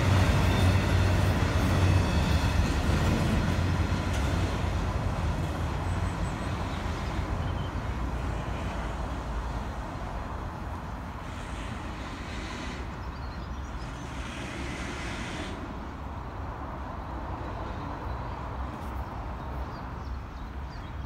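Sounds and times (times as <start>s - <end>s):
train wheels rumbling on rails: 0.0s - 16.3s.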